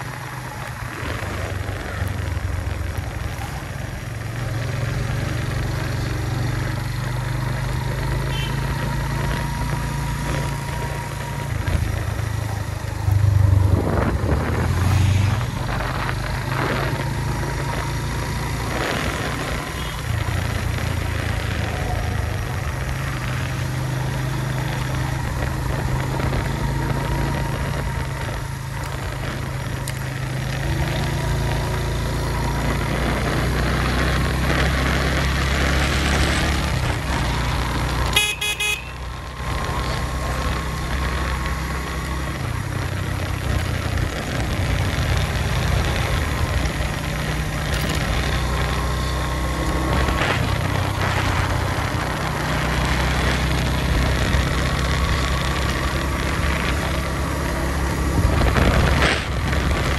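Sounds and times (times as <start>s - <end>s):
motorcycle engine running: 0.0s - 59.9s
short horn toot: 38.1s - 39.0s.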